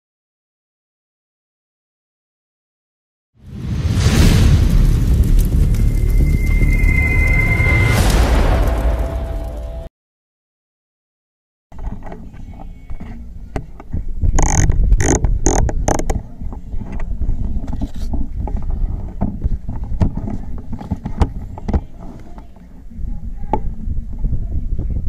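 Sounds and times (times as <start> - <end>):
low rumbling wind: 3.4 - 9.9, 13.3 - 22.0, 22.8 - 25.0.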